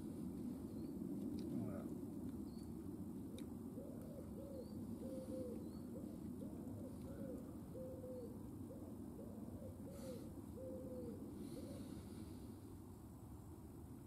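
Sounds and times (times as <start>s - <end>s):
pigeon cooing: 3.8s - 12.2s.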